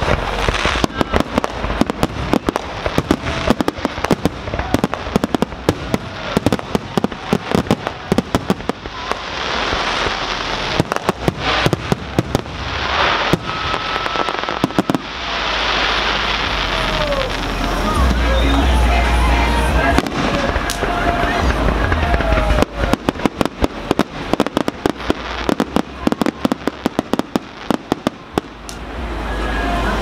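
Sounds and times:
fireworks bursting with sharp bangs: 0:00.0 - 0:30.0.

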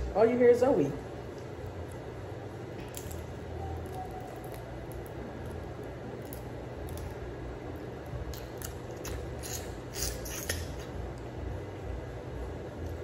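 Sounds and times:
crab shells cracking: 0:02.7 - 0:07.4, 0:08.0 - 0:10.9.

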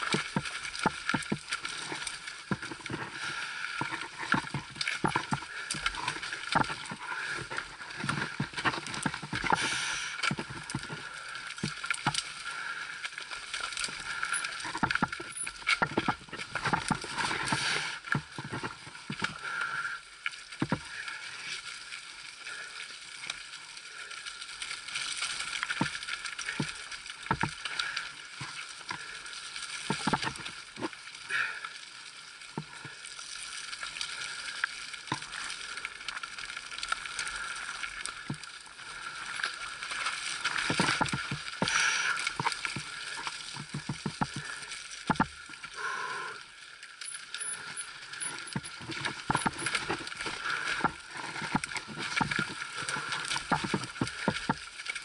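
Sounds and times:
wheels clunking on rocks: 0:00.0 - 0:12.3, 0:13.7 - 0:19.4, 0:25.7 - 0:29.0, 0:29.8 - 0:30.9, 0:40.6 - 0:45.4, 0:47.0 - 0:54.7
bike tyres on rough trail: 0:00.0 - 0:55.0
bike chain and frame rattling: 0:13.8 - 0:17.0, 0:47.0 - 0:53.1.

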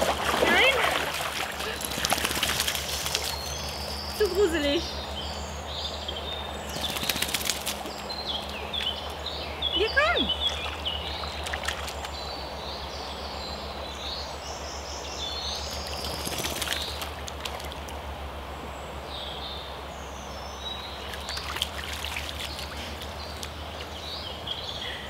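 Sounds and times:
water splashing: 0:00.0 - 0:04.5, 0:09.9 - 0:12.2, 0:21.0 - 0:24.0
shallow river flowing: 0:00.0 - 0:05.7, 0:15.1 - 0:25.0
small birds singing: 0:00.0 - 0:25.0.

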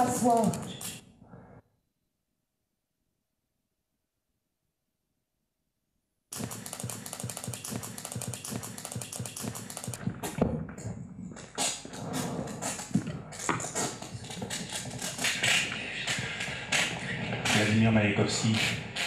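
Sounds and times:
electronic clicking and crackle: 0:00.0 - 0:01.0, 0:06.4 - 0:10.0.

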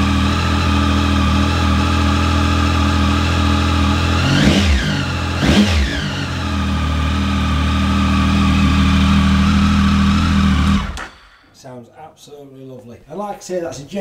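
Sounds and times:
motorcycle engine revving and idling: 0:00.0 - 0:11.2.

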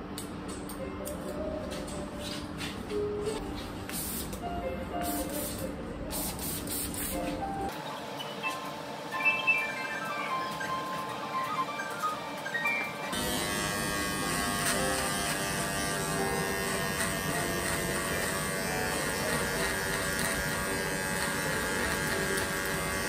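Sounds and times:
electric hair clipper buzzing: 0:13.1 - 0:23.0.

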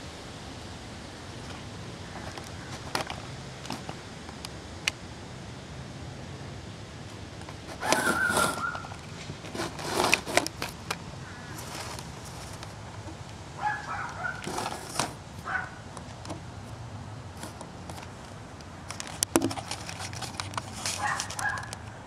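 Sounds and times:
camera moving through foliage: 0:07.2 - 0:16.3, 0:17.3 - 0:22.0
distant short pitched calls: 0:07.7 - 0:09.2, 0:11.0 - 0:16.0.

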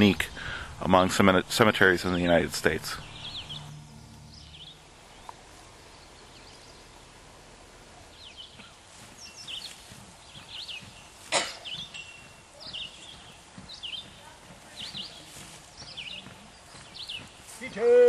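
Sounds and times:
high bird chirps: 0:02.3 - 0:06.8.

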